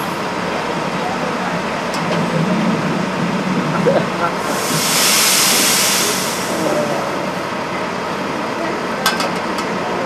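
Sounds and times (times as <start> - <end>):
air hiss: 4.4 - 7.4.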